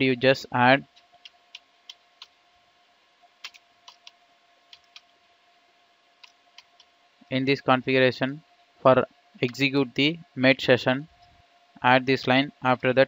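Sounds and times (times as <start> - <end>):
keyboard keystrokes: 4.7 - 5.1.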